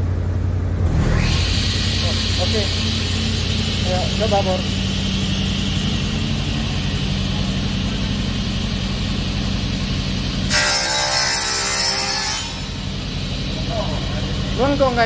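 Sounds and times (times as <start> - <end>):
panel saw motor hum: 0.8 - 15.0
saw blade cutting through board: 10.5 - 12.8.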